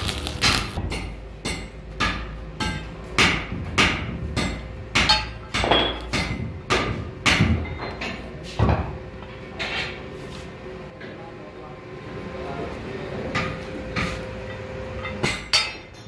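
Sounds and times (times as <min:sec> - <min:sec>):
hammer striking metal: 0:00.2 - 0:08.2, 0:13.3 - 0:16.0.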